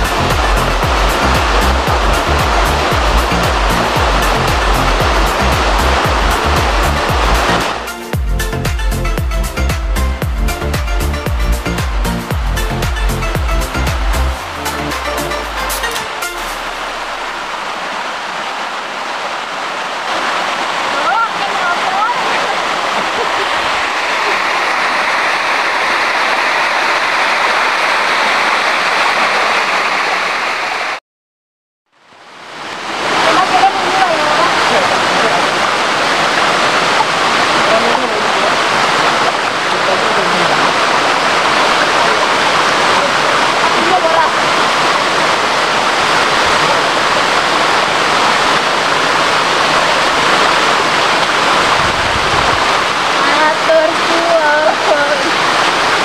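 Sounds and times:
people wading through water: 0:00.0 - 0:07.7, 0:20.2 - 0:26.0, 0:32.9 - 0:56.0
stream rushing over rocks: 0:00.0 - 0:31.0, 0:32.0 - 0:56.0.

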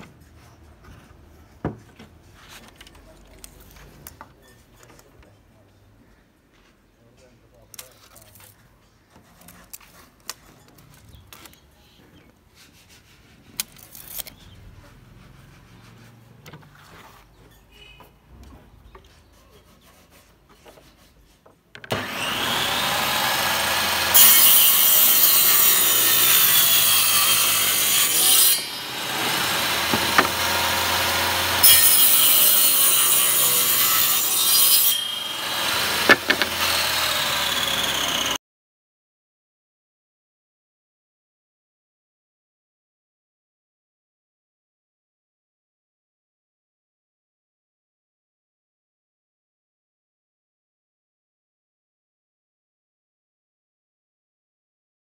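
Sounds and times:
table saw cutting panel: 0:21.9 - 0:38.4.

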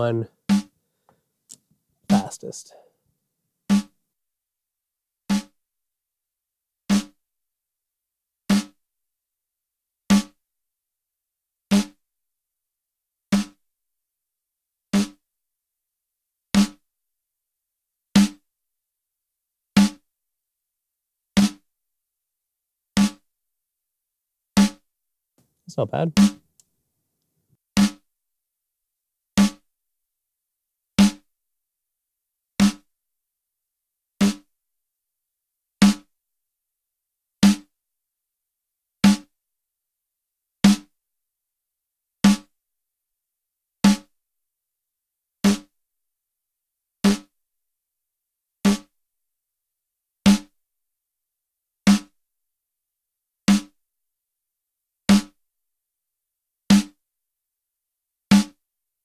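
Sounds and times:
compressed snare drum hit: 0:00.5 - 0:00.7, 0:02.1 - 0:02.5, 0:03.7 - 0:03.9, 0:06.9 - 0:07.1, 0:27.8 - 0:28.0, 0:34.2 - 0:34.4, 0:35.8 - 0:36.0, 0:58.3 - 0:58.5.

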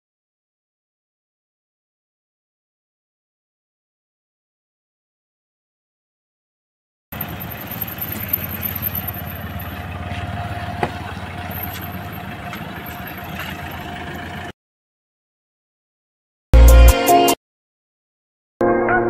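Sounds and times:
car engine idling: 0:07.2 - 0:14.5.

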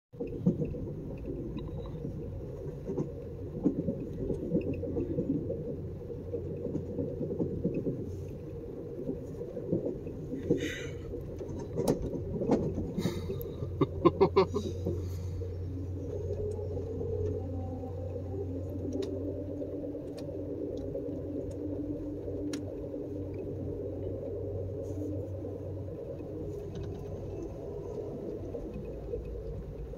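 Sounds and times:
train low rumble: 0:00.1 - 0:29.9
train clicks and knocks: 0:00.2 - 0:15.1.

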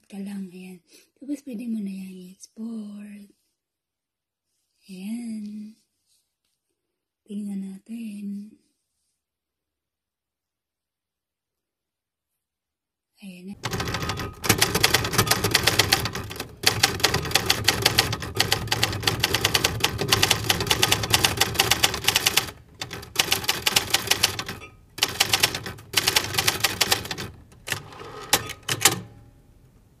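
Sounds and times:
typewriter key clacks: 0:13.6 - 0:29.2.

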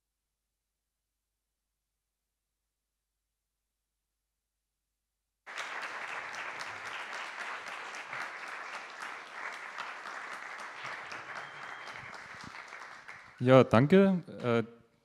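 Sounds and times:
audience applauding: 0:05.5 - 0:13.6.

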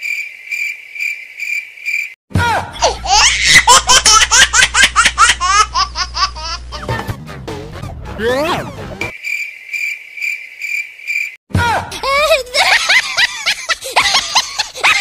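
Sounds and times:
cricket chirping trill: 0:00.0 - 0:02.2, 0:09.1 - 0:11.4
high squeaky laughing: 0:12.0 - 0:15.0.

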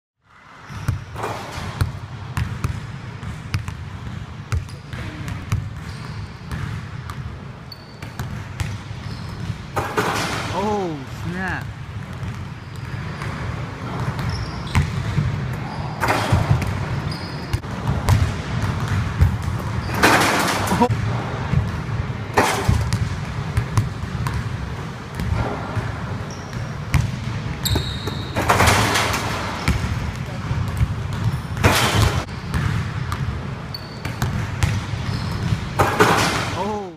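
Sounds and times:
basketball hitting rim and floor: 0:00.6 - 0:36.9
basketball bouncing on hardwood floor: 0:01.5 - 0:07.2, 0:17.8 - 0:20.2.

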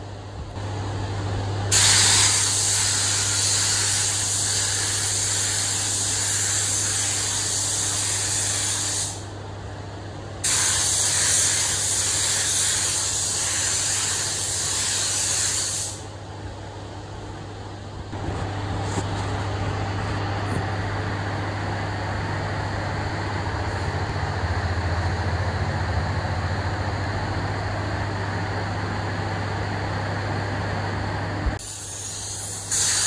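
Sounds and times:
paint spray gun hissing: 0:01.7 - 0:09.2, 0:31.6 - 0:33.0
low hum: 0:16.2 - 0:31.6.

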